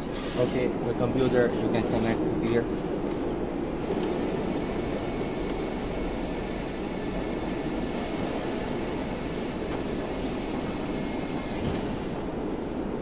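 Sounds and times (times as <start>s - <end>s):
workshop machinery drone: 0.0s - 13.0s.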